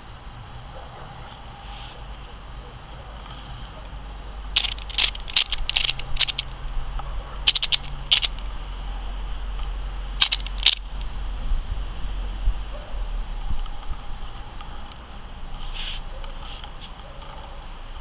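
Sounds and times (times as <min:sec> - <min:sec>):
sharp crackling clicks: 0:04.6 - 0:06.6, 0:07.5 - 0:08.4, 0:10.2 - 0:11.1.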